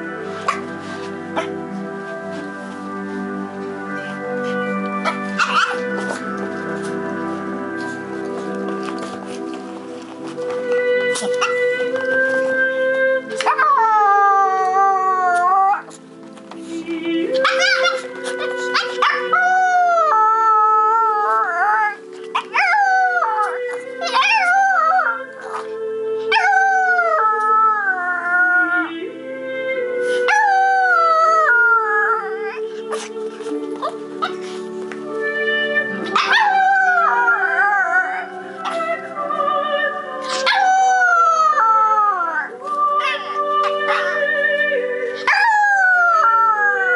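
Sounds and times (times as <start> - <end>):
music with long held notes: 0.0 - 46.9
dog howling: 13.4 - 15.9, 17.4 - 25.6, 26.2 - 28.9, 30.3 - 33.1, 36.1 - 39.0, 40.2 - 44.3, 45.2 - 46.9.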